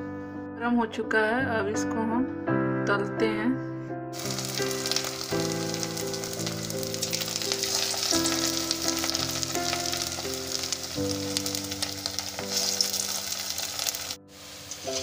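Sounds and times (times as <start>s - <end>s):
background music: 0.0s - 15.0s
food deep-frying in oil: 4.2s - 15.0s.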